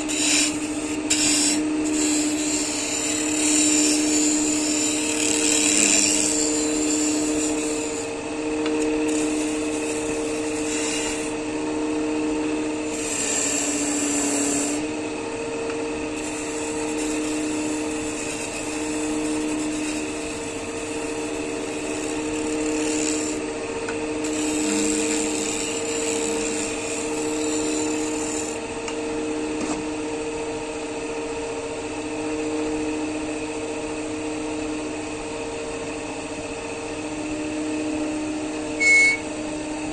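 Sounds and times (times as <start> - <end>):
chisel scraping spinning wood: 0.0 - 11.4, 12.7 - 14.9, 16.1 - 23.4, 24.2 - 28.6
lathe motor humming: 0.0 - 29.5.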